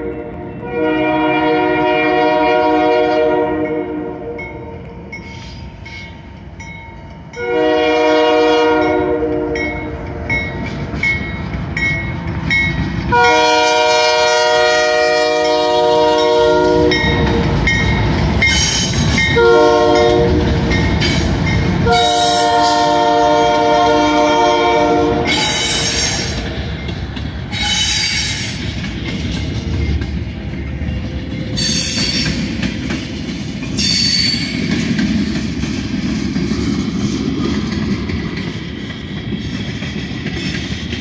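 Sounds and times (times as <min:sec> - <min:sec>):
locomotive horn blasts: 0:00.0 - 0:04.4, 0:07.4 - 0:10.2, 0:13.1 - 0:17.3, 0:19.4 - 0:20.4, 0:21.8 - 0:26.0
high-pitched wheel squeals: 0:33.8 - 0:34.6.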